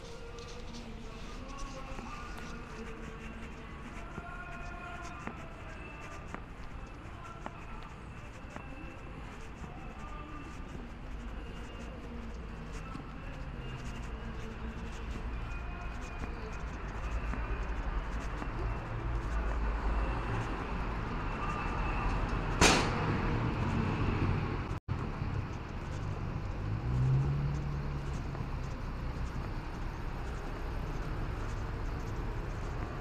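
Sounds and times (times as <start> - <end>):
traffic rumble: 0.0 - 33.0
vehicle engine hum rising: 11.1 - 33.0
sharp knock: 22.6 - 23.1.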